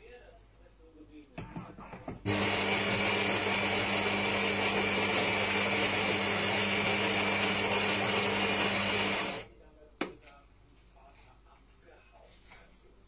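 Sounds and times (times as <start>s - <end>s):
coffee machine motor whirring: 2.2s - 9.5s.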